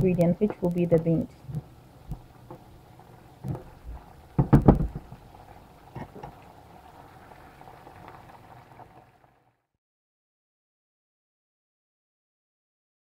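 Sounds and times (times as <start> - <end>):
stew simmering with faint bubbling: 0.0 - 9.7
wooden spoon knocking on pan: 4.4 - 5.1.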